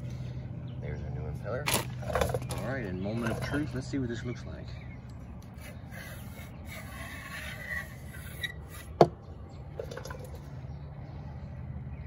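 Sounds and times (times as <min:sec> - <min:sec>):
metal scraping and rubbing: 0:05.5 - 0:09.1.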